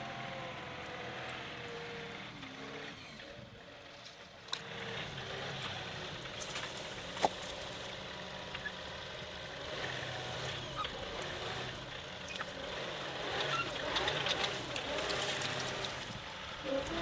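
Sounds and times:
tractor diesel engine running: 0:00.0 - 0:17.0.

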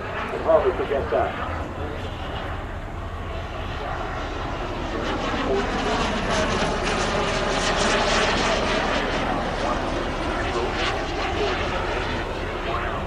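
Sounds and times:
jet engines flying overhead: 0:00.0 - 0:13.0.

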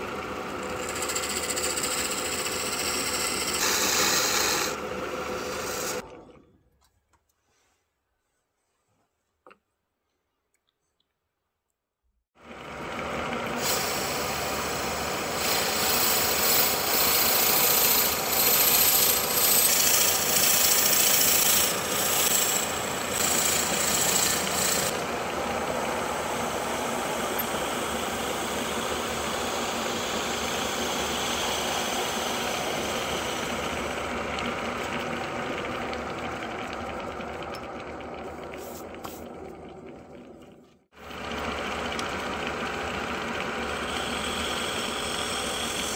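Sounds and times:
tool scraping spinning wood: 0:00.0 - 0:06.0, 0:13.6 - 0:35.7, 0:42.8 - 0:45.9
wood lathe running: 0:00.0 - 0:06.1, 0:12.5 - 0:38.5, 0:41.0 - 0:45.9.

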